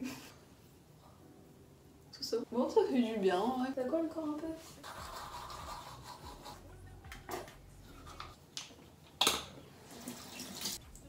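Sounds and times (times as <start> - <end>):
toothbrush scrubbing: 4.8 - 6.7.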